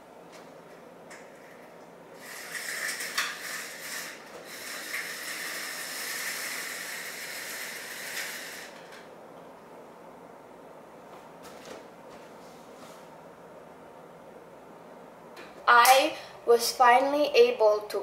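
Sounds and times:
blinds sliding along headrail: 0:00.4 - 0:09.1
vertical blinds clattering: 0:01.2 - 0:09.1.

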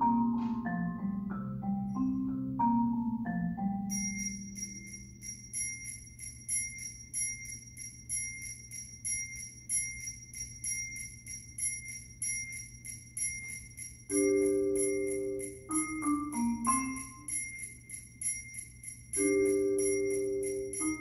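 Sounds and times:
low mallet keyboard chord: 0:00.0 - 0:05.4, 0:14.1 - 0:17.6, 0:19.2 - 0:21.0.

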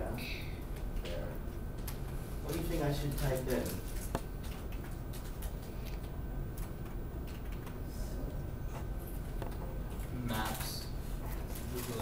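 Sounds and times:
low room hum: 0:00.0 - 0:12.0
keyboard and mouse clicks: 0:04.1 - 0:07.8.

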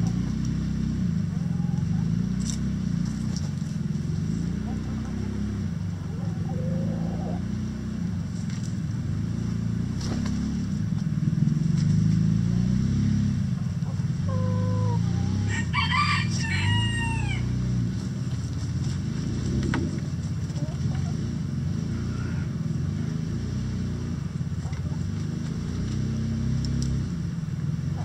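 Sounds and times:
rooster crowing: 0:14.3 - 0:17.6.

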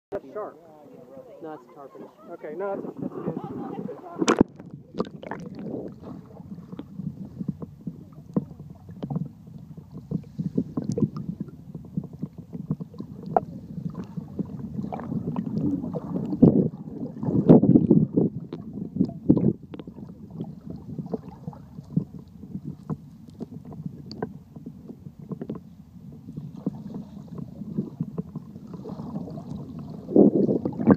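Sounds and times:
muffled underwater sloshing: 0:00.2 - 0:30.9.

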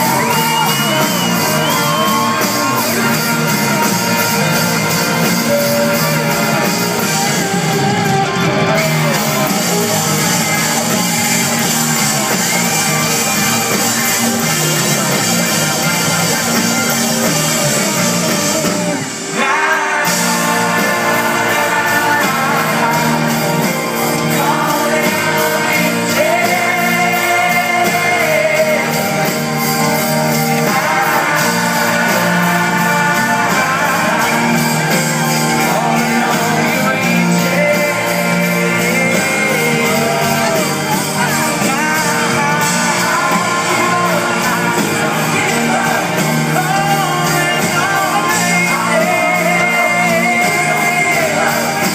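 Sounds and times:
amplified guitars: 0:00.0 - 0:51.9
drum kit: 0:00.0 - 0:51.9
person singing: 0:00.0 - 0:51.9.

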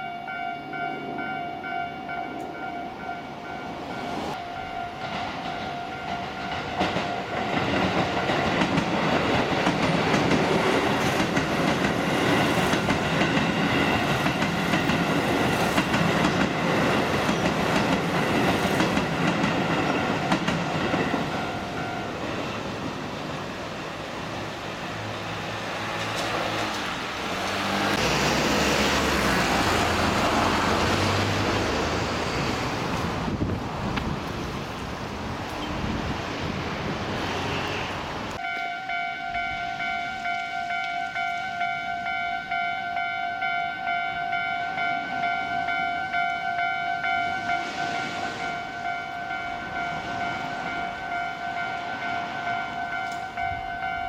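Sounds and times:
level crossing warning bell: 0:00.0 - 0:08.8, 0:10.5 - 0:22.6, 0:38.4 - 0:54.0
car passing by: 0:24.2 - 0:38.4.

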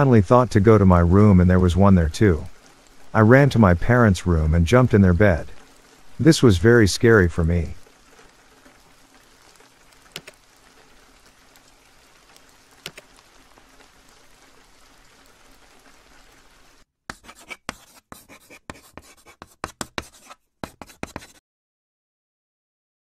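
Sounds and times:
steady rain: 0:00.0 - 0:16.9
scratchy scribbling strokes: 0:17.1 - 0:21.4.

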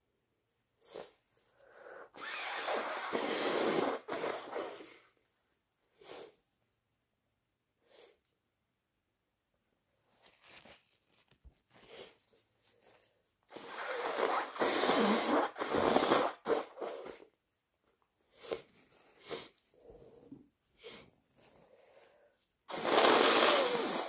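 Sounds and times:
person sniffing and breathing: 0:00.8 - 0:05.2, 0:05.9 - 0:06.4, 0:11.7 - 0:17.3, 0:18.3 - 0:24.0
nose blowing: 0:01.9 - 0:05.1, 0:13.5 - 0:17.3, 0:22.7 - 0:24.0.

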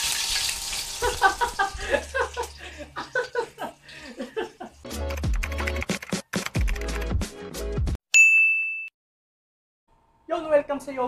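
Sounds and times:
fast clicks like typing: 0:05.0 - 0:07.1.

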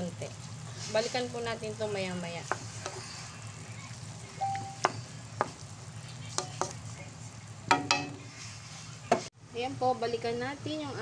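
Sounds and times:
low sizzle of simmering sauce: 0:00.0 - 0:09.3
spatula scraping a wok: 0:00.2 - 0:07.4, 0:08.0 - 0:09.3.

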